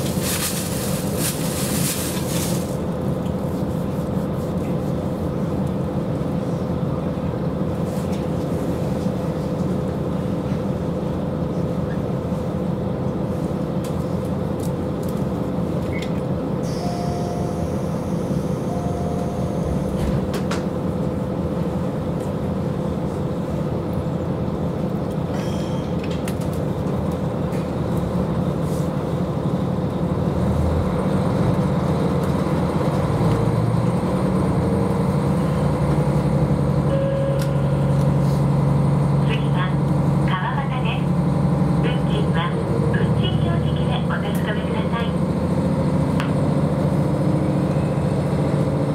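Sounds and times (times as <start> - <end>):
diesel railcar engine: 0.0 - 48.9
short beeps: 36.9 - 37.6.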